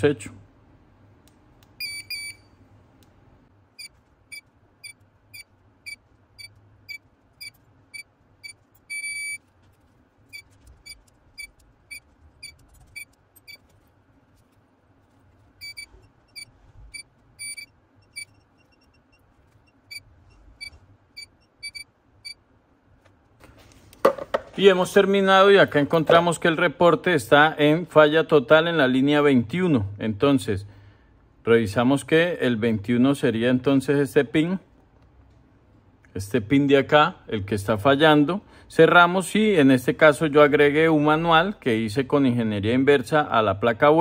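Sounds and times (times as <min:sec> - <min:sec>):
multimeter beeps: 0:01.8 - 0:02.6, 0:03.8 - 0:09.5, 0:10.3 - 0:13.7, 0:15.6 - 0:22.4.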